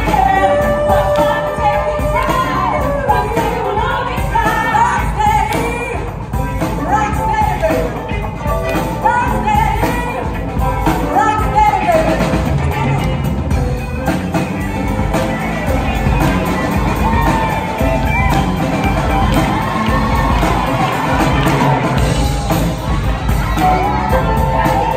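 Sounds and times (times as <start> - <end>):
women singing: 0.0 - 8.0
live soul band playing: 0.0 - 24.9.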